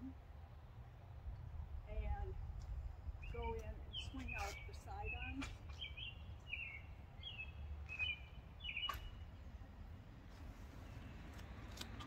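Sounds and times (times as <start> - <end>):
low outdoor rumble: 0.0 - 12.0
bird chirping: 3.2 - 9.4.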